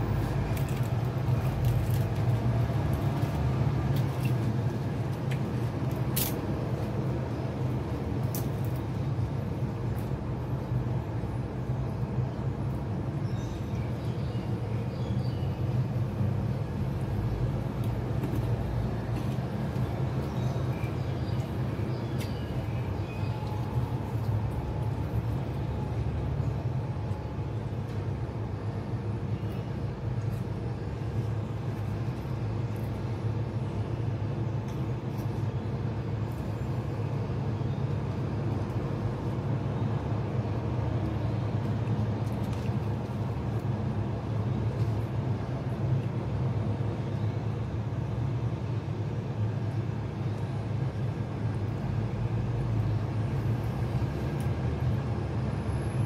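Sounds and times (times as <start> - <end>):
steady low rumble: 0.0 - 13.3.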